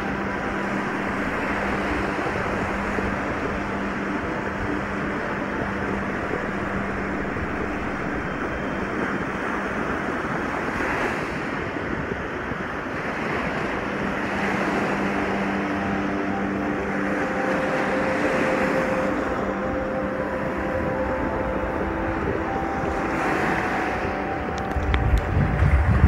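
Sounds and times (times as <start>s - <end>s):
small waves washing over sand: 8.9s - 26.0s.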